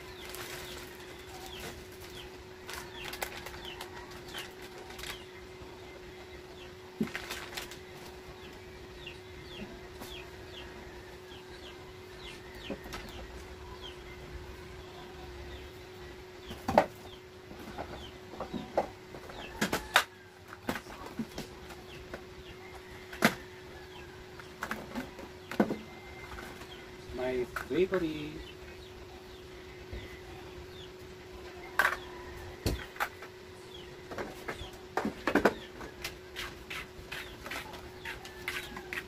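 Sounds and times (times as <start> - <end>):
plastic packets rustling: 0.0 - 5.3, 7.0 - 8.1
steady hum: 0.0 - 39.0.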